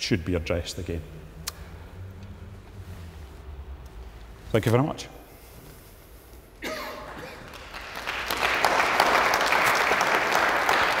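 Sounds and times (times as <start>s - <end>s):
audience applauding: 7.1s - 11.0s.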